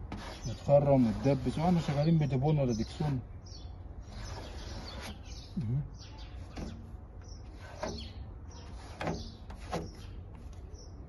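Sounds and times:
sandpaper rasping on filler: 0:00.1 - 0:03.2, 0:04.0 - 0:05.4, 0:07.4 - 0:10.2
bird chirps: 0:01.9 - 0:11.0.

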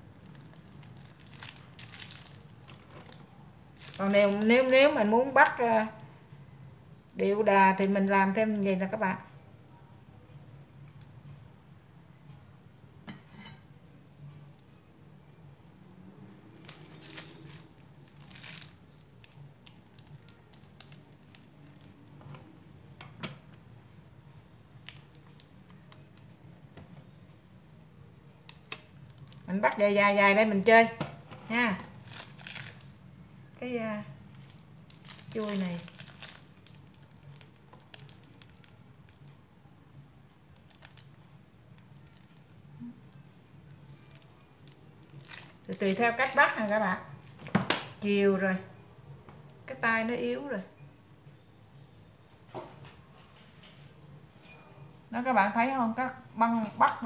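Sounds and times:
plastic piping bag crinkling: 0:00.0 - 0:06.1, 0:16.5 - 0:22.1, 0:24.8 - 0:26.3, 0:28.5 - 0:30.9, 0:31.8 - 0:39.3, 0:40.5 - 0:47.5.

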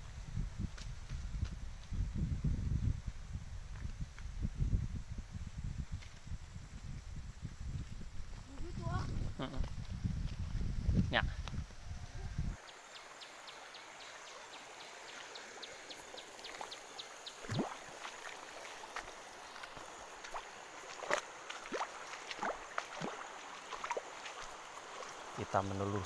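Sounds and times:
river flowing over rocks: 0:12.6 - 0:26.0
splashing footsteps in water: 0:16.0 - 0:25.5.

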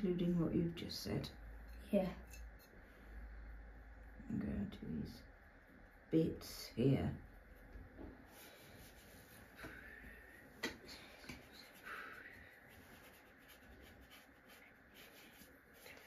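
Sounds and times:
paintbrushes scratching on paper: 0:04.8 - 0:16.0.

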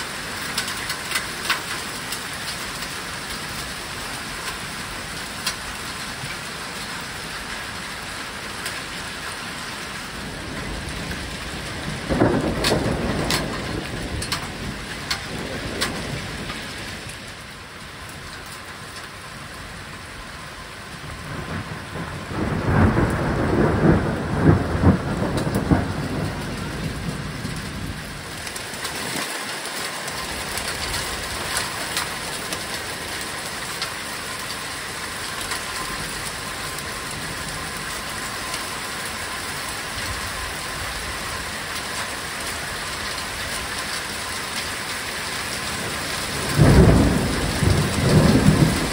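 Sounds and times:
heavy rain and hail: 0:00.0 - 0:48.9
thunder rumbling: 0:10.0 - 0:17.5, 0:20.9 - 0:29.2, 0:45.4 - 0:48.9.

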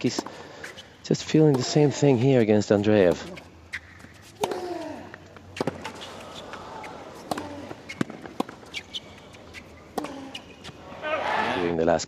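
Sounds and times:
racket striking tennis ball: 0:02.8 - 0:04.8, 0:05.4 - 0:10.8
ball bouncing: 0:02.8 - 0:10.8.

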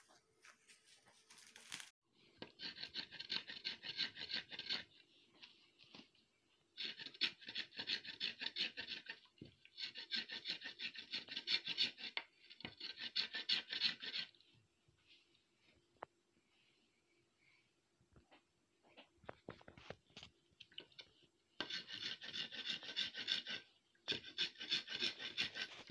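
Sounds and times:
coconut scraping on blade: 0:02.4 - 0:05.0, 0:06.8 - 0:14.4, 0:21.6 - 0:25.9.

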